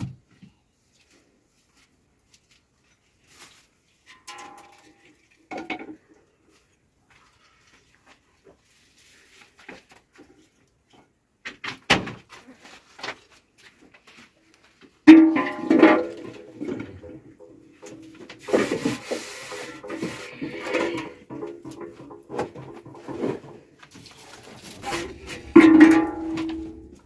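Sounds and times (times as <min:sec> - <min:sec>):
metal pan clanging and ringing: 0:04.1 - 0:05.0, 0:15.1 - 0:16.5, 0:24.8 - 0:27.0.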